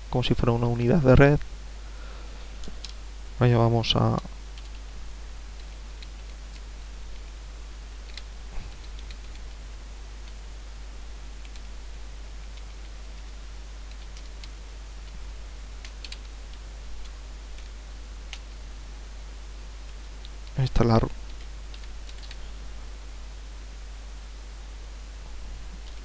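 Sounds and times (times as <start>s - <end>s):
steady hiss: 0.0s - 26.0s
computer keyboard keys clicking: 4.2s - 4.8s, 5.6s - 7.3s, 8.1s - 9.6s, 11.4s - 11.7s, 13.9s - 15.2s, 15.8s - 17.7s, 21.3s - 22.4s.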